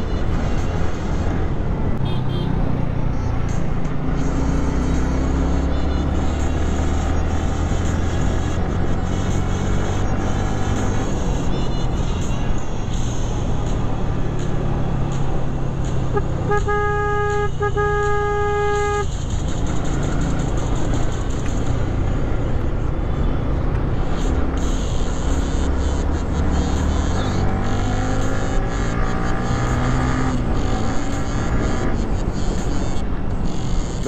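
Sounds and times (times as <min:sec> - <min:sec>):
motorcycle engine and wind: 0:00.0 - 0:34.0
vehicle horn: 0:02.0 - 0:02.8, 0:03.5 - 0:13.9, 0:16.0 - 0:21.7, 0:24.0 - 0:34.0.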